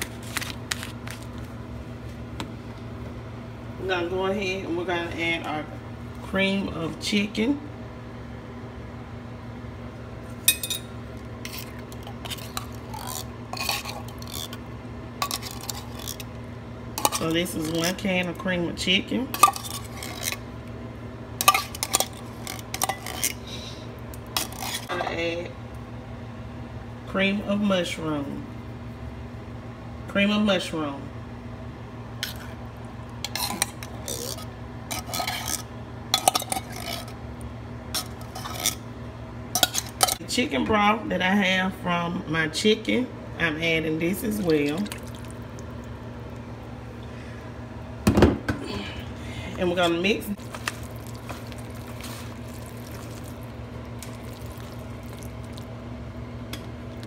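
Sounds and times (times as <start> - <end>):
metal spoon scraping tin can: 11.5 - 14.6, 15.2 - 16.3, 33.3 - 35.6, 38.0 - 38.8.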